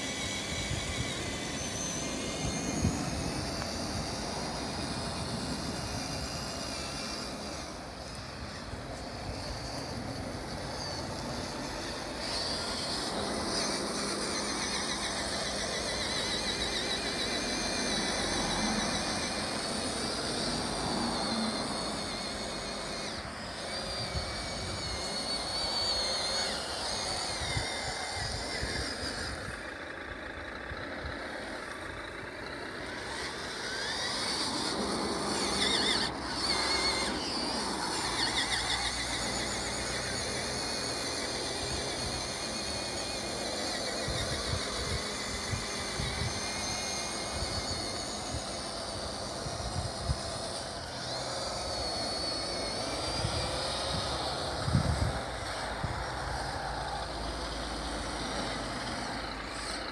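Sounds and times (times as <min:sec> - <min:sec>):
rc truck motor whining: 0:00.0 - 0:59.9
wind rumbling on microphone: 0:44.0 - 0:46.4, 0:53.2 - 0:56.2.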